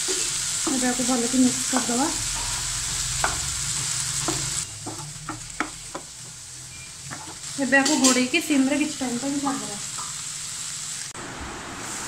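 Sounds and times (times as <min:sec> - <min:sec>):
vegetables sizzling in oil: 0:00.0 - 0:12.0
spatula knocking against pan: 0:04.2 - 0:06.1.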